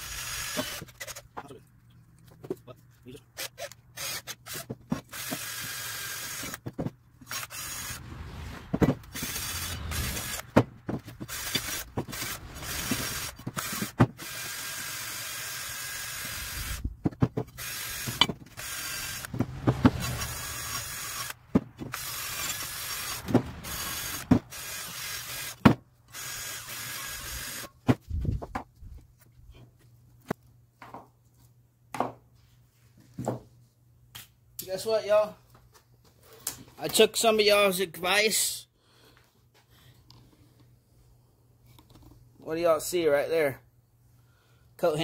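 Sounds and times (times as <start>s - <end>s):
drill with wire brush whirring: 0.0s - 1.3s, 3.4s - 16.9s, 17.5s - 27.8s.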